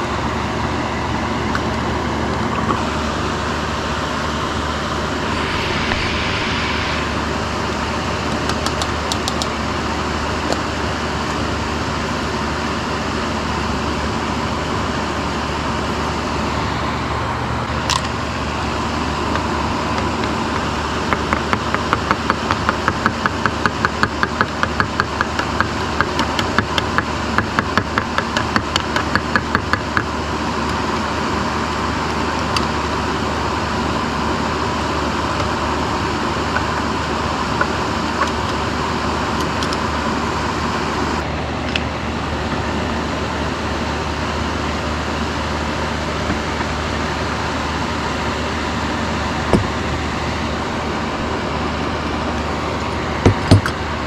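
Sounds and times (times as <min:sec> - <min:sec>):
steady mechanical hum: 0:00.0 - 0:54.0
faint whine: 0:04.5 - 0:10.1.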